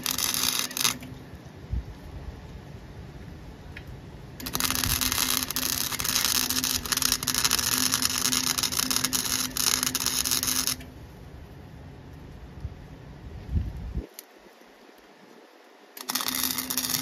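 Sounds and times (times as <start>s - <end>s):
welder arc crackling: 0.0s - 1.2s, 3.8s - 11.0s, 15.9s - 17.0s
steady hum: 0.0s - 17.0s.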